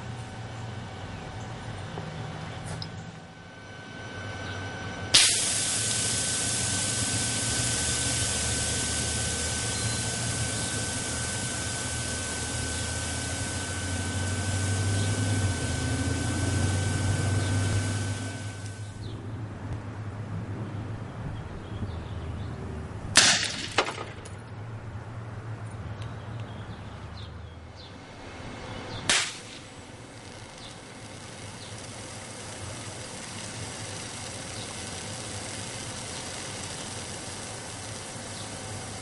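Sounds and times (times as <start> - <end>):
capacitor venting hiss and whistle: 2.6 - 19.1, 27.8 - 39.0
capacitor exploding bang: 5.1 - 13.6, 23.1 - 24.3, 29.0 - 29.8.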